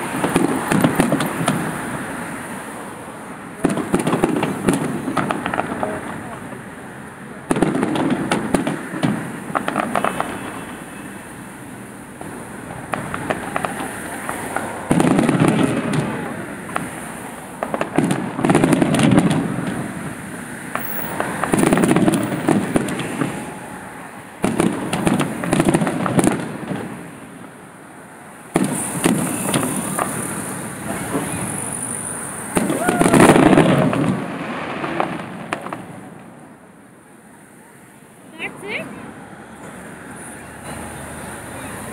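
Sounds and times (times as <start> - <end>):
firework bangs: 0.0 - 27.7, 28.3 - 36.8
crackling firework pops: 0.1 - 1.8, 3.6 - 6.6, 7.5 - 10.6, 12.2 - 20.0, 20.7 - 23.5, 24.4 - 27.0, 28.5 - 31.3, 32.5 - 36.5.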